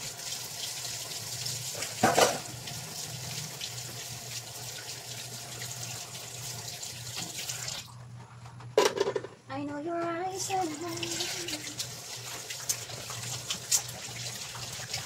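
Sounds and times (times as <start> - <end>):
running water hissing: 10.4 - 15.0.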